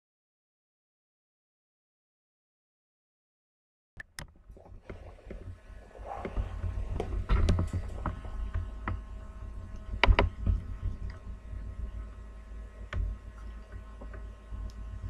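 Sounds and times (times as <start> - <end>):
faint steady hum: 4.1 - 15.0.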